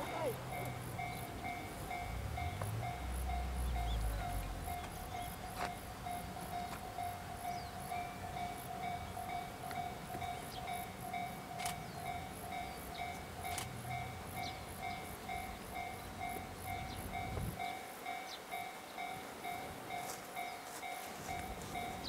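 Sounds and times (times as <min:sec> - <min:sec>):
level crossing bell ringing: 0:00.0 - 0:13.4
passing train rumble: 0:00.0 - 0:22.0.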